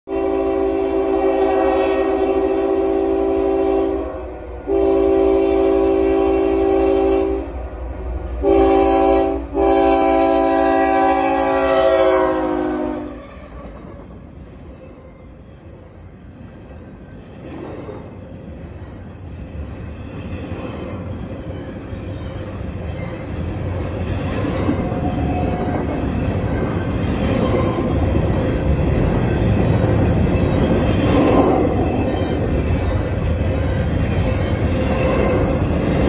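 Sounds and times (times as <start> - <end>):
locomotive air horn blasts: 0.1 - 7.6, 8.4 - 13.7
train rumbling by: 0.1 - 36.0.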